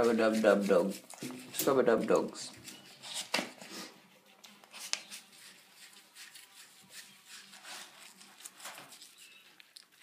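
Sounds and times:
hands scrubbing wet dog coat: 0.0 - 2.5, 4.6 - 10.0.

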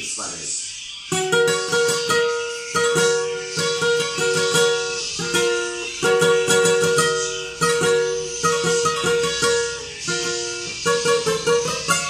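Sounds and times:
acoustic guitar fingerpicked and strummed: 1.1 - 12.0.

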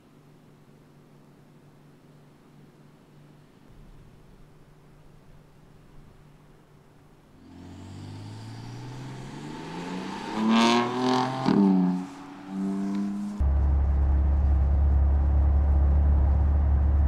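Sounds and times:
car engine accelerating past: 7.4 - 17.0
low drone: 7.7 - 17.0
exhaust crack: 8.2 - 17.0.

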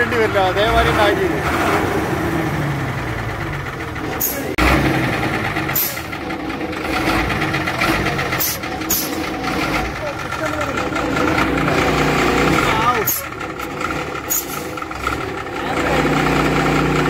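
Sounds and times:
diesel bus engine running: 0.0 - 17.0.

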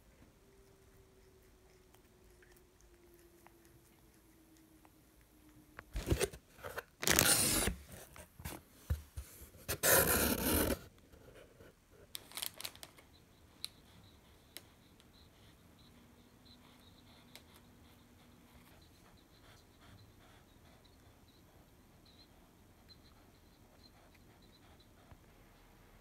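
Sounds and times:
rustling and crinkling: 5.8 - 13.1.

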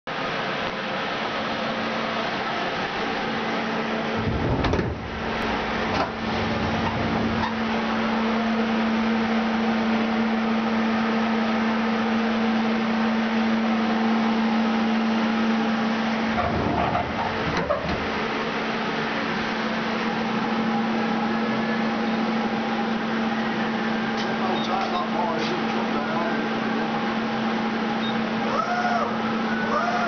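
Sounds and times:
sliding guard doors: 4.0 - 7.9, 16.2 - 18.3.

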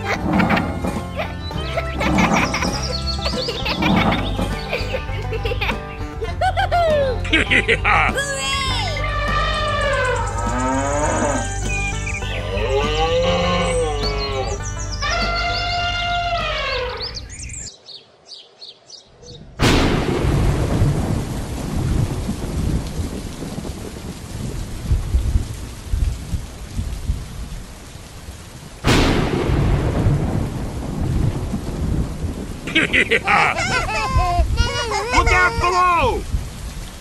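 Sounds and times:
thunderclap: 0.0 - 5.8, 19.4 - 27.7, 28.6 - 37.0
heavy rain: 0.0 - 18.0, 19.6 - 37.0.

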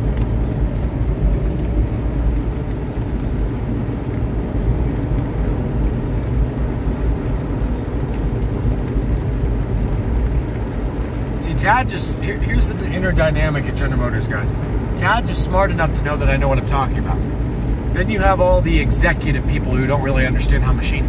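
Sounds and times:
road and tyre noise in car: 0.0 - 21.0.

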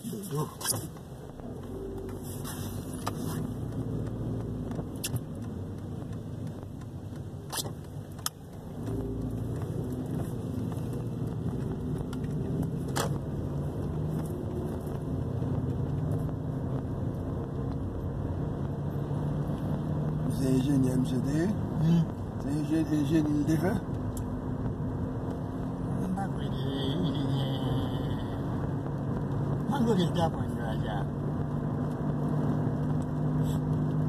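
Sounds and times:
car engine and tyre rumble: 0.0 - 34.0
sharp clicks and knocks: 2.9 - 16.4.

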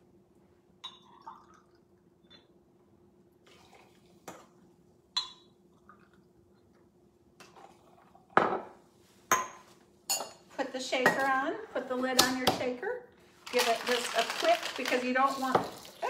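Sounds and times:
cider trickling into a jigger: 0.8 - 2.0, 3.4 - 4.6, 13.6 - 16.0.

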